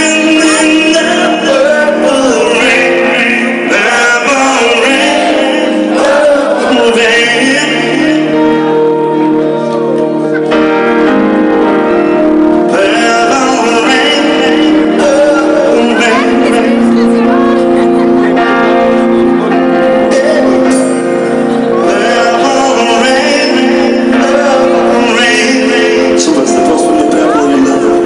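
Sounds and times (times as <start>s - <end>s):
man singing lead vocals: 0.0s - 9.8s, 12.6s - 28.0s
backing singers: 0.0s - 9.9s, 19.9s - 26.6s
electric guitar: 0.0s - 28.0s
sustained held chords: 0.0s - 28.0s.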